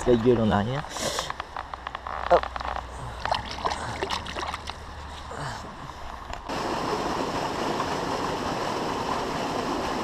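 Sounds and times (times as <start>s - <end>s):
stream water pouring over weir: 2.6s - 10.0s.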